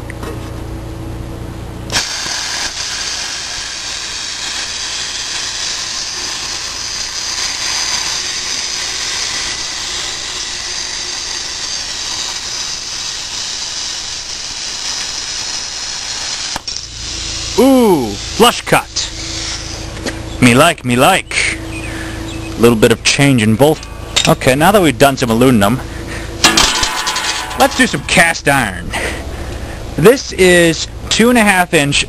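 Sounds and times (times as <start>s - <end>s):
plasma cutter hissing: 1.9s - 20.2s, 26.4s - 28.4s.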